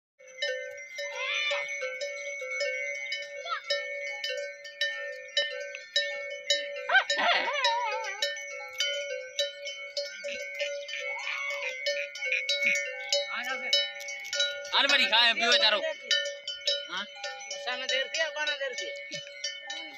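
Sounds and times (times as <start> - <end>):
goat bells clanking: 0.2 - 19.9
goats bleating: 10.3 - 12.9.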